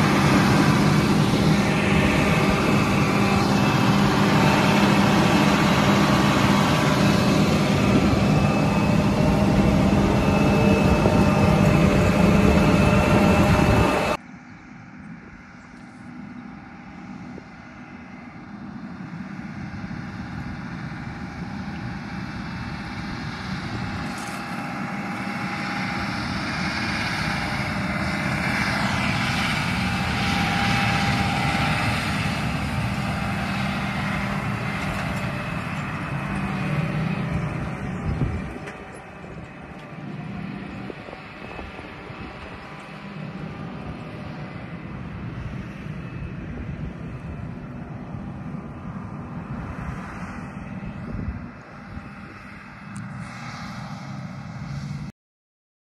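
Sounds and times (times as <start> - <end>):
crop sprayer engine: 0.0 - 54.9.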